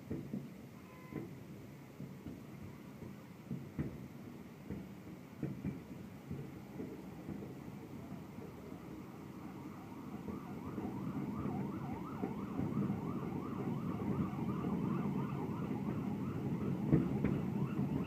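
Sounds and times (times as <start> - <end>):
siren yelping: 8.9 - 18.0.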